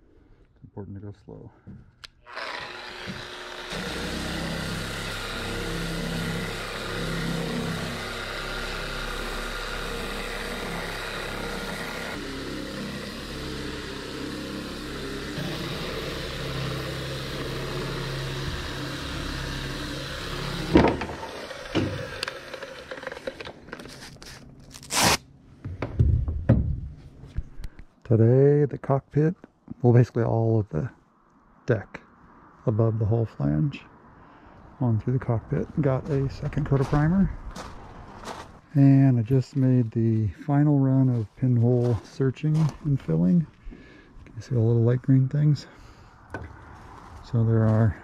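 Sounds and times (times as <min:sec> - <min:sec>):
orbital sander running: 0:02.2 - 0:24.2.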